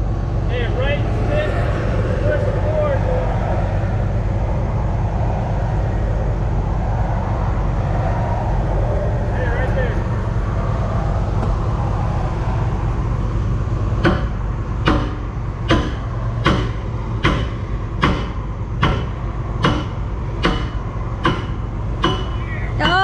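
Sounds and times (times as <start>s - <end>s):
diesel engine running: 0.0s - 23.0s
hammer striking metal: 14.0s - 23.0s.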